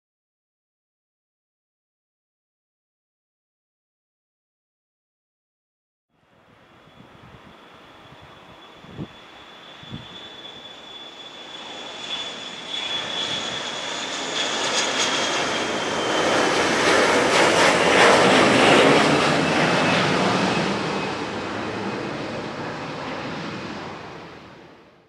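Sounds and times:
jet aircraft engine noise: 6.2 - 25.0
jet engine high whine: 6.2 - 25.0.

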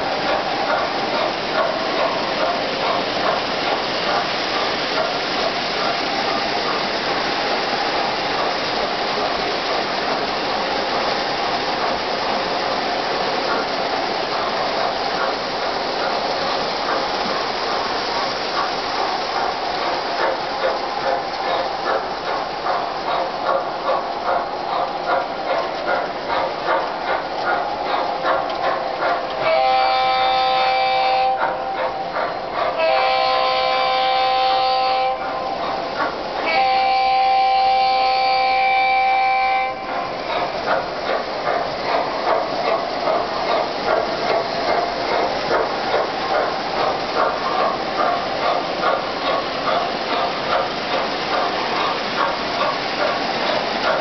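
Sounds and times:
model train wheels rumbling on rails: 0.0 - 54.0
locomotive whistle: 29.4 - 32.2, 32.8 - 35.8, 36.4 - 40.1.

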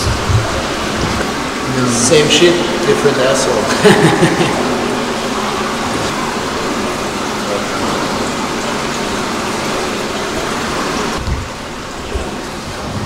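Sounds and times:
low thumps: 0.0 - 1.6.

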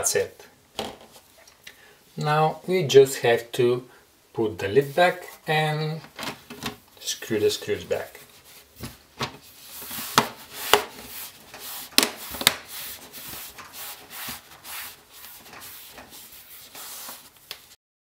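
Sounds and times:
rubbing and scraping on laptop case: 8.1 - 17.8.

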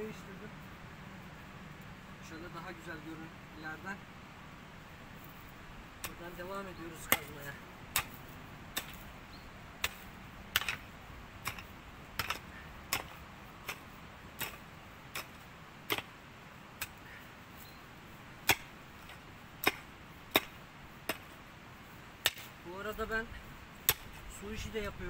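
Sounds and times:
digging tool striking stony soil: 6.0 - 9.2, 9.8 - 16.2, 16.8 - 17.0, 18.4 - 21.4, 22.2 - 22.6, 23.8 - 24.4.

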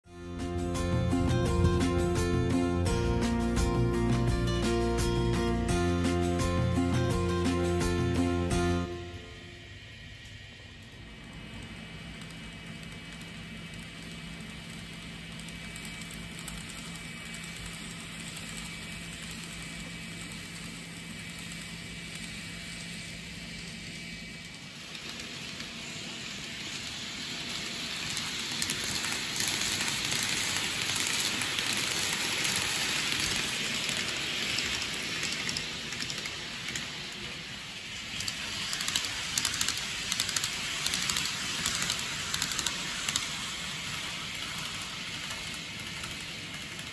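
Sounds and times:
model train motor hum: 4.2 - 46.9
wheels rattling on rails: 10.2 - 46.9.

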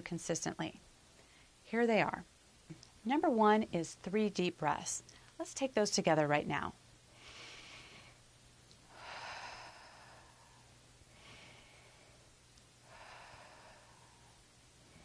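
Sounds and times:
woman breathing deeply: 7.1 - 15.0.

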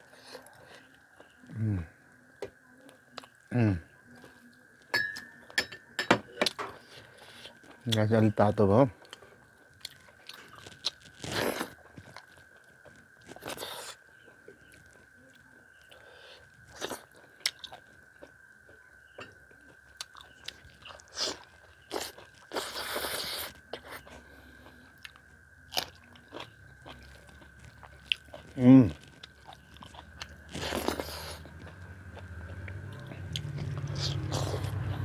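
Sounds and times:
chewing and crunchy bites: 9.0 - 18.8, 19.4 - 35.0.

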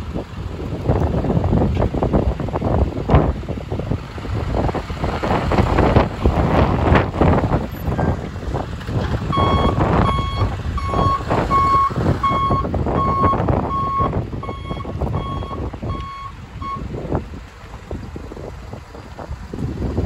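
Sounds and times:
truck reversing alarm beeping: 9.3 - 16.9.

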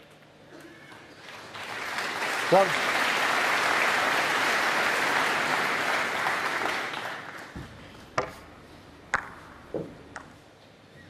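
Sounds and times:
audience applauding: 0.9 - 7.6
snooker balls clicking together: 9.1 - 10.4.

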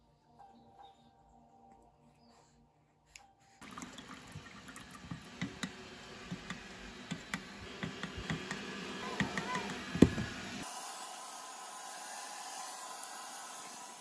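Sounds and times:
water drips and splashes: 3.6 - 5.7
running water with splashes: 3.6 - 10.1.

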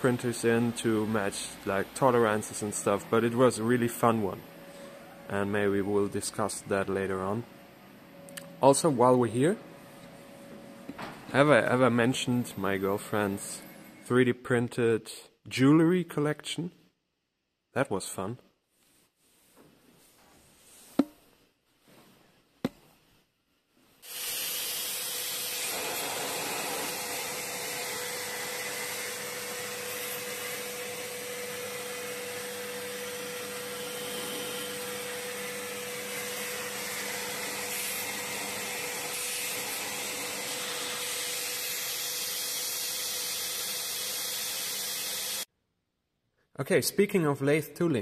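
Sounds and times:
vacuum cleaner running: 0.0 - 14.0, 24.0 - 45.5.

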